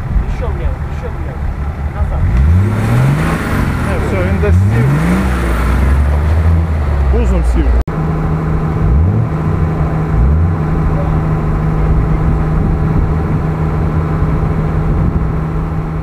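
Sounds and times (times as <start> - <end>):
engine running at low revs: 0.0 - 16.0.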